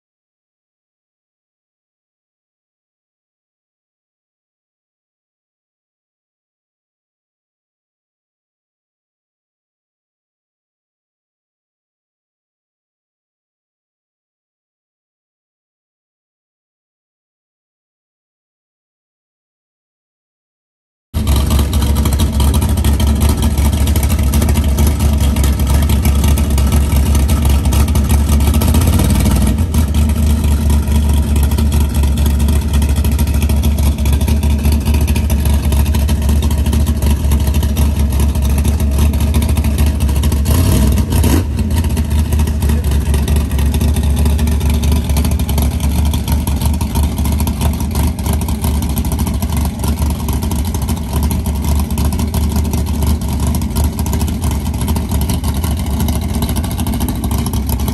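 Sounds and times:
car engine droning: 21.2s - 57.9s.

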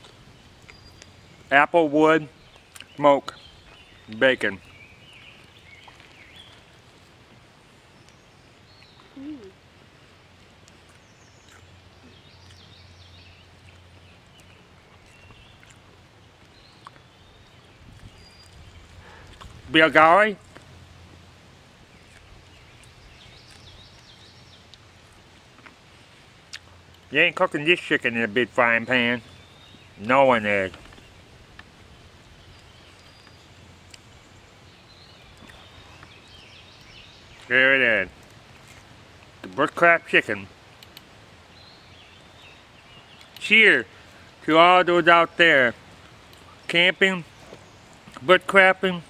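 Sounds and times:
faint bird chirps: 7.9s - 9.6s.

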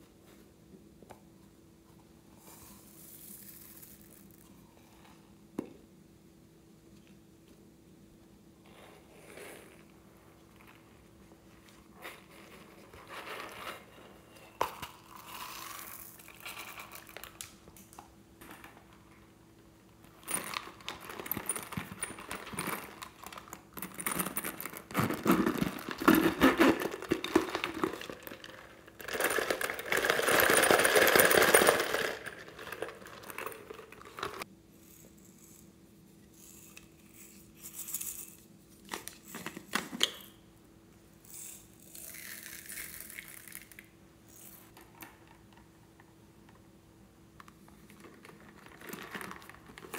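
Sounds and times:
plastic toys clicking and rattling: 20.2s - 35.6s, 47.8s - 49.9s.

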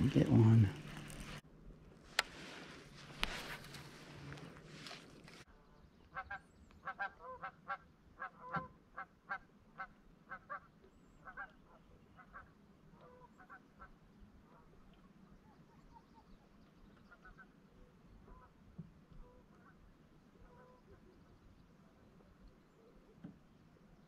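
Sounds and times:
faint waterfowl calls: 5.5s - 24.0s.

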